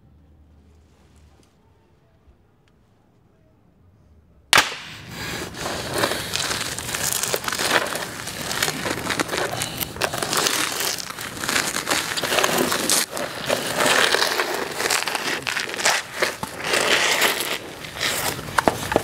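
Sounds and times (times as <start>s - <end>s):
dense crackling and clattering: 4.6s - 19.0s.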